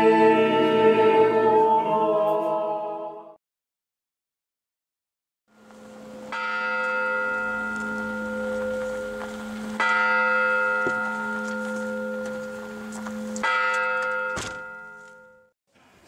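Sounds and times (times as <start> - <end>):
church bell ringing: 5.6 - 15.6.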